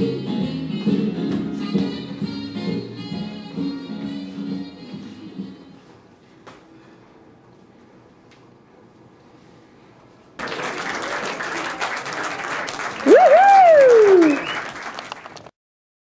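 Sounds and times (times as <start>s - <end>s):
hands clapping in applause: 10.4s - 15.5s
loud whooping cheer: 12.8s - 14.8s.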